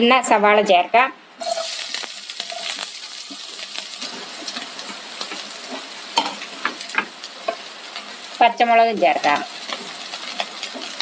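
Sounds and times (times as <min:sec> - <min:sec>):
onions sizzling in hot oil: 0:01.4 - 0:11.0.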